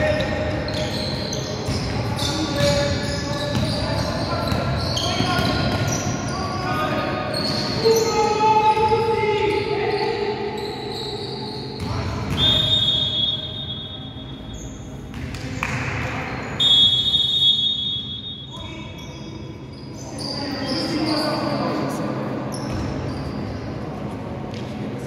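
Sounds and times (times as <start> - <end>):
referee's whistle blasts: 10.6 - 14.6, 16.6 - 19.3.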